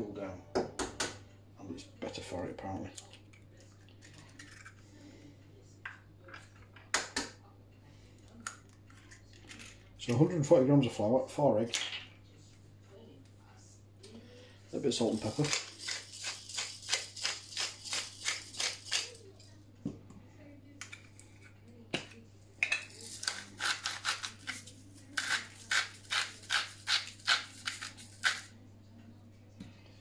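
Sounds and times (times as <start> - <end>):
pepper mill grinding: 3.8 - 4.8, 14.9 - 19.5, 22.9 - 28.5.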